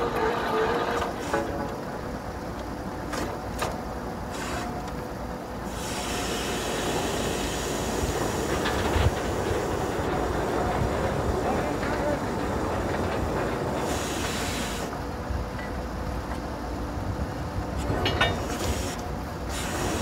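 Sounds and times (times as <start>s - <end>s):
hiss: 4.3s - 4.8s, 5.6s - 10.1s, 13.7s - 15.0s, 18.4s - 20.0s.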